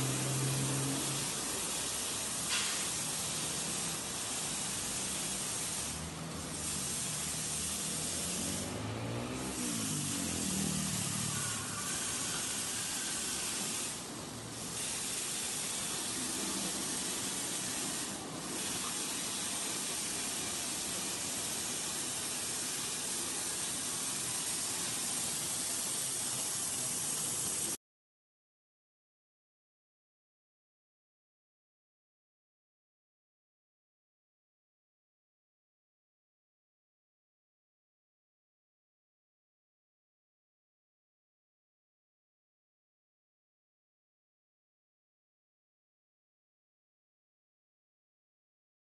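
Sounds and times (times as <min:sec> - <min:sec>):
spraying water hiss: 0:00.0 - 0:27.8.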